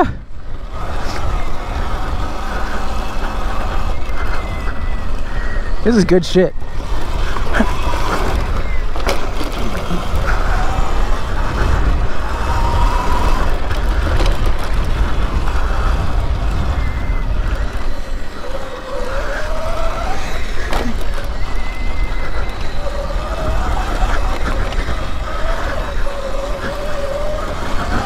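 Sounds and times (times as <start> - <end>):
electric motor whine: 0.0 - 28.0
wind buffeting microphone: 0.0 - 28.0
rattles and knocks from bumps: 7.2 - 10.7, 13.4 - 15.6.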